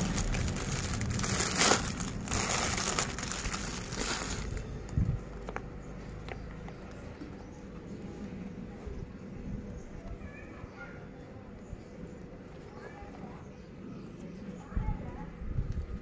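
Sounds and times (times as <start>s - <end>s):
plastic packaging crinkling: 0.0s - 5.6s.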